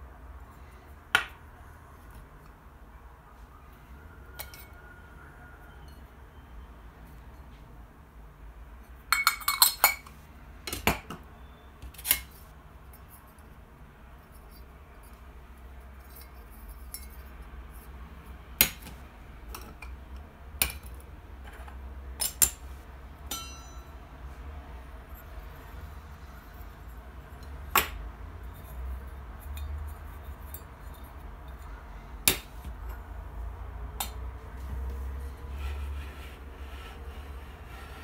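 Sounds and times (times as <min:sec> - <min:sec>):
porcelain and metal clinking: 0:04.3 - 0:04.8, 0:09.1 - 0:10.2, 0:16.0 - 0:17.8, 0:23.3 - 0:24.0, 0:26.4 - 0:33.1.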